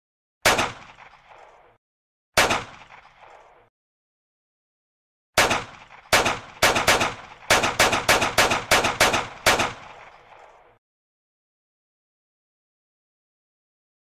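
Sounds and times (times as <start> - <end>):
handgun gunshots: 0.4 - 1.6, 2.4 - 3.5, 5.4 - 10.6.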